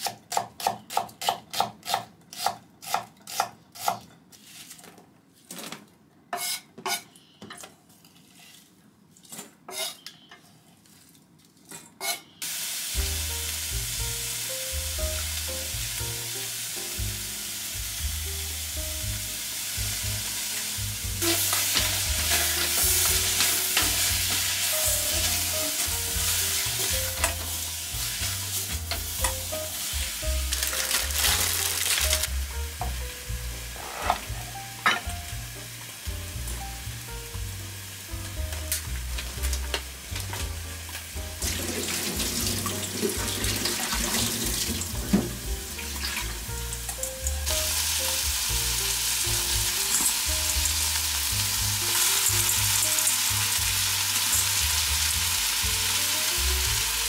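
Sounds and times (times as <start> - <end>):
knife chopping onion on board: 0.0 - 4.0
vegetables sizzling in butter: 12.4 - 57.0.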